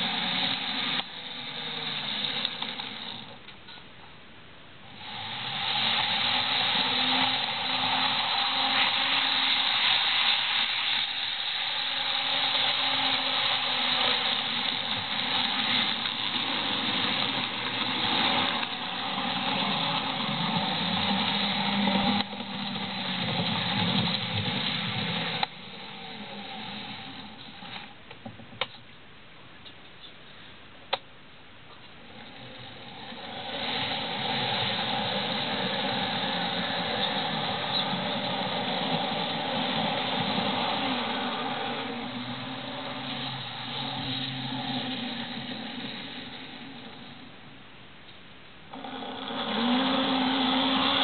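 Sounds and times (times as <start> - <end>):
model train motor whirring: 0.0 - 3.6, 4.9 - 28.0, 32.0 - 47.3, 48.7 - 51.0
train wheels rattling on track: 5.0 - 26.9.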